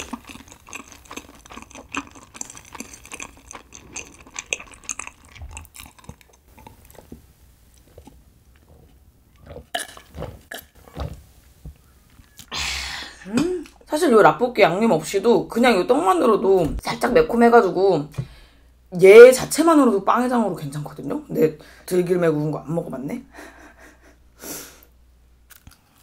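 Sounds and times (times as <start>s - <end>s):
gulping and swallowing: 0.0s - 7.2s, 7.8s - 11.2s.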